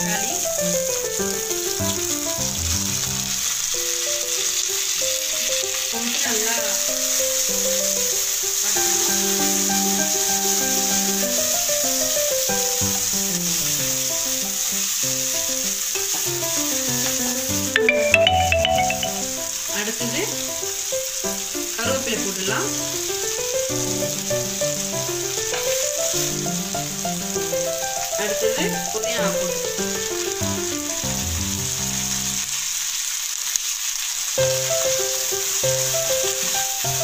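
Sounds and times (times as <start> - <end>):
vegetables sizzling in hot oil: 0.0 - 37.0
background music: 17.5 - 19.6.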